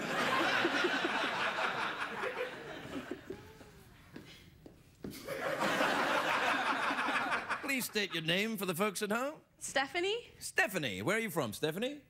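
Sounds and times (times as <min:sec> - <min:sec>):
people laughing: 0:00.0 - 0:03.7, 0:05.1 - 0:08.4.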